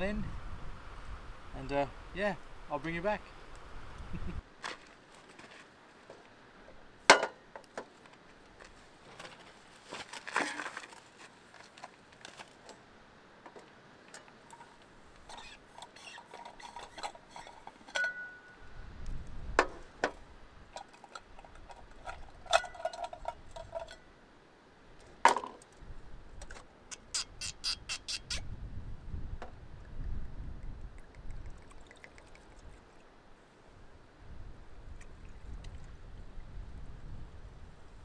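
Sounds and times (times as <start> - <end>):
cups and cookware clinking: 16.6 - 18.5.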